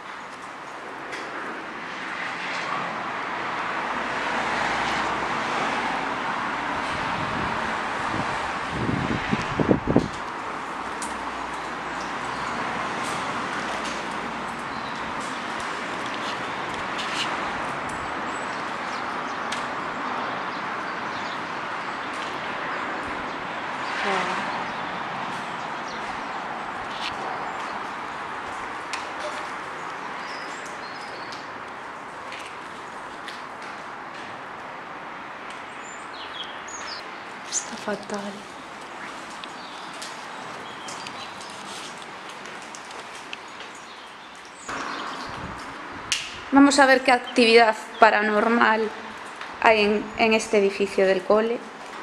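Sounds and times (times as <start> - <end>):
passing vehicle rushing: 1.8 - 21.8.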